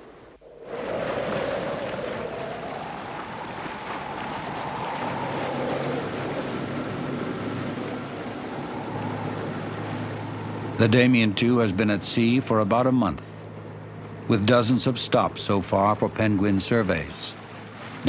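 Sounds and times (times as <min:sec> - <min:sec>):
rushing sea water: 0:00.0 - 0:18.0
wind: 0:00.0 - 0:18.0
low engine hum: 0:00.4 - 0:18.0
wavering whistle: 0:08.0 - 0:10.8.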